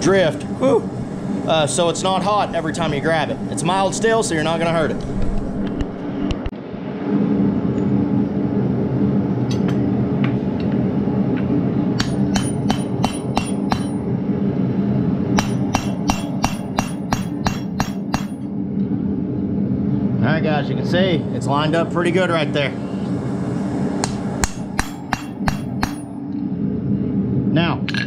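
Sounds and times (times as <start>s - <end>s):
steady low hum: 0.0s - 28.0s
hammer ringing on steel: 12.0s - 14.0s, 15.4s - 18.4s, 24.4s - 26.1s.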